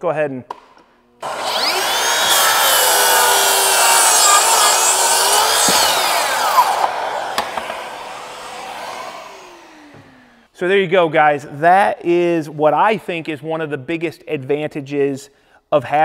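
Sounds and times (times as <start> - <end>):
circular saw cutting wood: 1.2 - 10.5
saw blade spinning down: 1.2 - 10.5.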